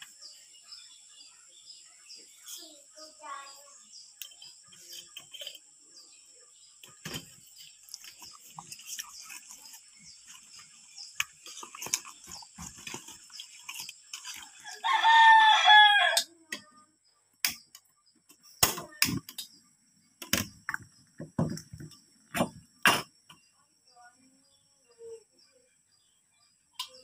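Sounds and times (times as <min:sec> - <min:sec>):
rooster crowing: 0:14.7 - 0:16.2.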